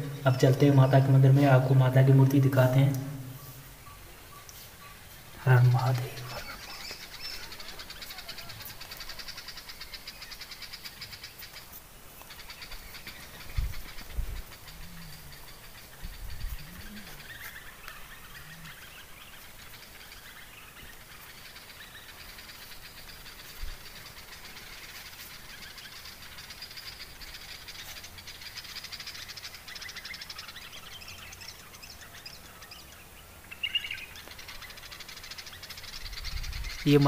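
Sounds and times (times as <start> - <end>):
loud bird call: 0.0 - 11.6
birds chirping: 0.0 - 37.0.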